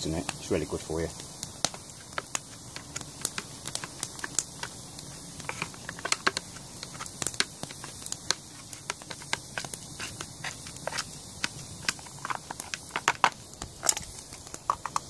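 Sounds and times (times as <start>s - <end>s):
campfire crackling: 0.0s - 15.0s.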